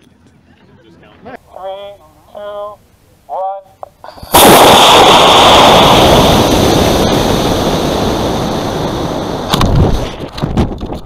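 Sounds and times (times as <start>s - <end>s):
sharp crack: 4.3s - 11.0s
wind noise on microphone: 4.6s - 11.0s.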